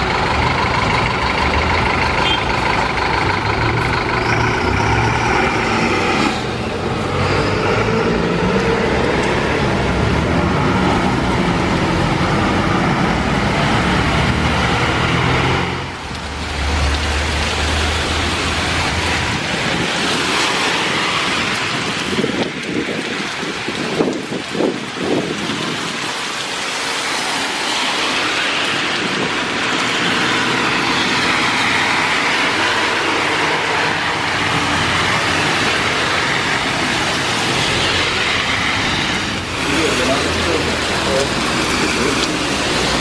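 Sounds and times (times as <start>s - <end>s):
bus engine hum: 0.0s - 16.0s
tyres hissing on wet road: 0.0s - 43.0s.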